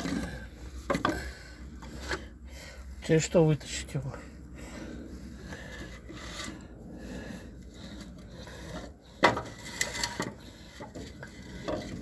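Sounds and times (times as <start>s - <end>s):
filter scraping against metal: 5.5s - 7.2s, 7.8s - 12.0s.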